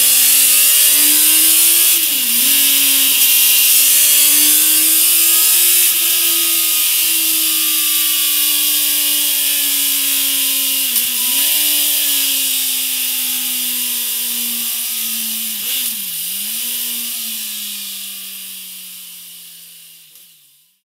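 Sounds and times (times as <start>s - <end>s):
motorcycle engine at high revs: 0.0s - 20.5s.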